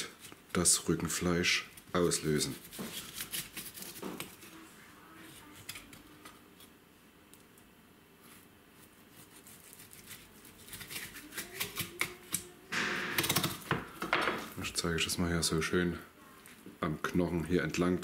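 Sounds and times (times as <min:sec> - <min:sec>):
knife slicing and scraping meat: 0:08.8 - 0:12.0.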